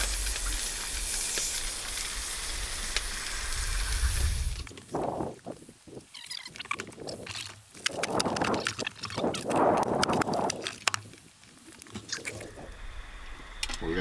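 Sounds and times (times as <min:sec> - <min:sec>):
crayfish shells cracking: 0:06.2 - 0:12.6.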